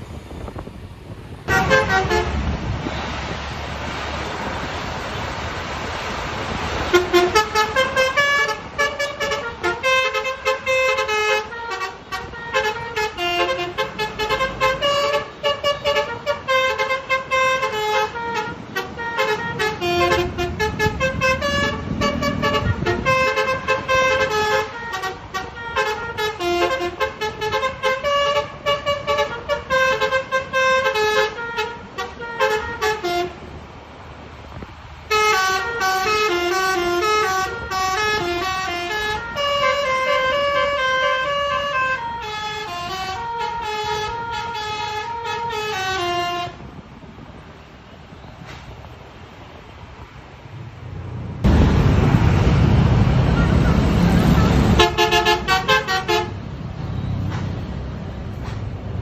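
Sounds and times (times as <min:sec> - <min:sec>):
bus musical horn melody: 0:01.4 - 0:03.0, 0:06.6 - 0:33.6, 0:34.9 - 0:46.8, 0:53.1 - 0:57.2.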